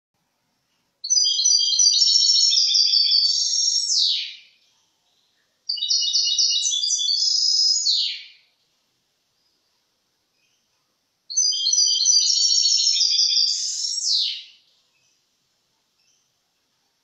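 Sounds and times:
goldfinch twittering song: 1.0s - 4.6s, 5.7s - 8.5s, 11.3s - 15.2s.

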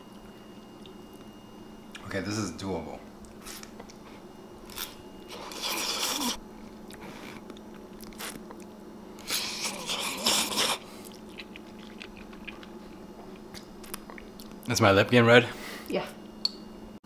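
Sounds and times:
soft chewing: 3.2s - 14.7s
person slurping noodles: 5.3s - 6.4s, 9.2s - 10.9s.

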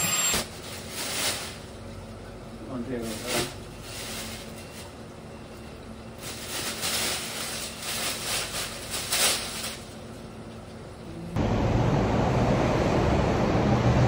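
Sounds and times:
plastic bag rustling: 0.3s - 2.0s, 2.9s - 5.1s, 6.1s - 10.2s.

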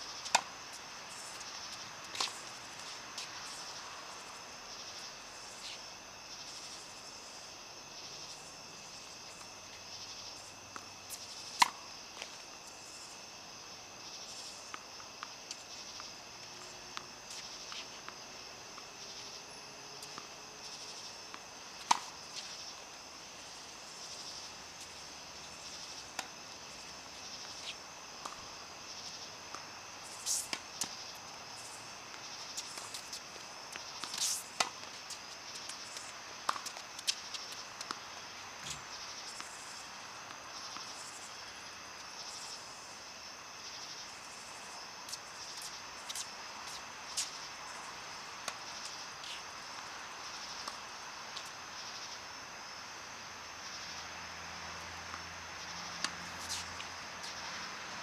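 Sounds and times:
insects chirring: 0.0s - 58.0s
tennis ball impacts: 11.5s - 12.3s, 20.9s - 22.9s, 29.5s - 39.6s.

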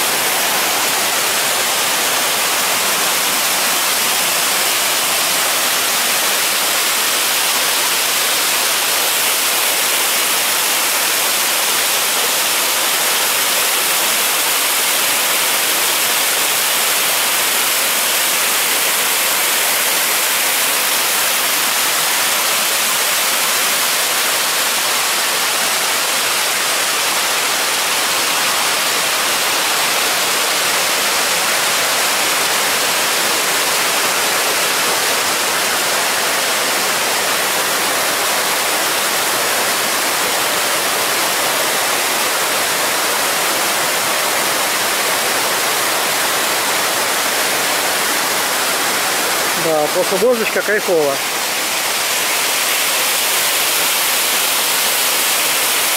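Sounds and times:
waterfall rushing over rocks: 0.0s - 55.9s.

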